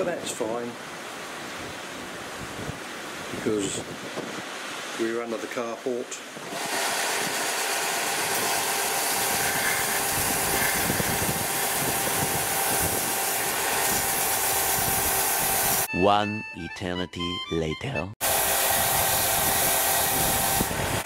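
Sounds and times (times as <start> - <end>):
belt sander motor hum: 6.5 - 15.9, 18.2 - 21.0
wood sanding on belt: 6.5 - 15.9, 18.2 - 21.0.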